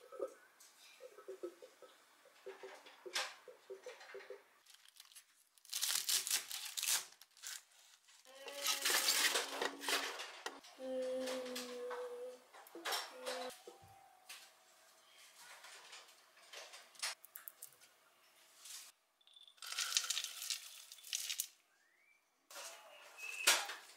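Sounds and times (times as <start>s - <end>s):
spinach leaves crunching: 4.6s - 9.4s, 19.6s - 21.6s.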